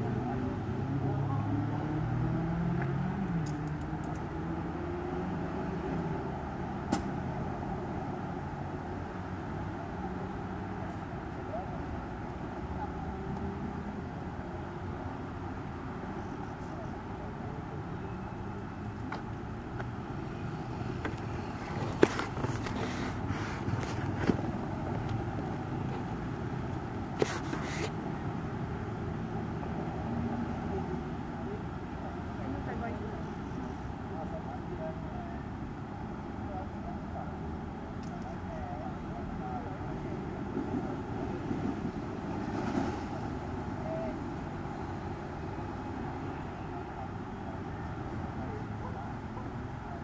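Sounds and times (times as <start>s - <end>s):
low rumble of motor vehicles: 0.0s - 50.0s
brief hiss: 27.2s - 28.0s.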